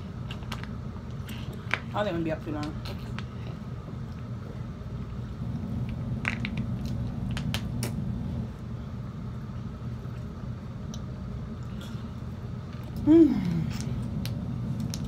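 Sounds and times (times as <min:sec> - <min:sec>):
low hum: 0:02.8 - 0:15.0.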